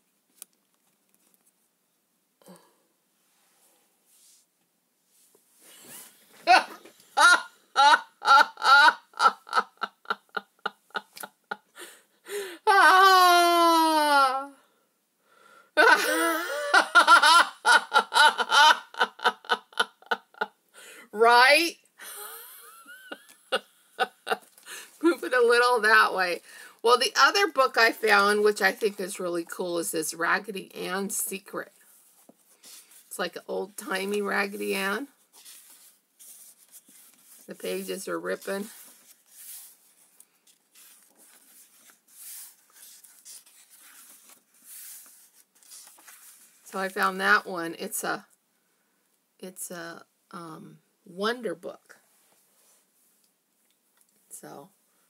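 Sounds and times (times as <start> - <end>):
book pages rustling: 0.0 - 1.8, 34.0 - 46.6
woman laughing: 6.4 - 12.0, 15.8 - 20.5, 22.0 - 24.5
pages tearing: 40.6 - 46.4.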